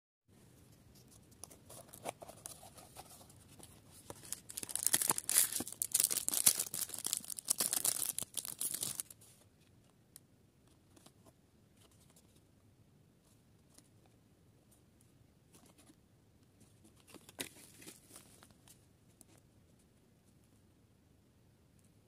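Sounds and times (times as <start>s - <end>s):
plastic packaging crinkling and tearing: 4.0s - 9.2s.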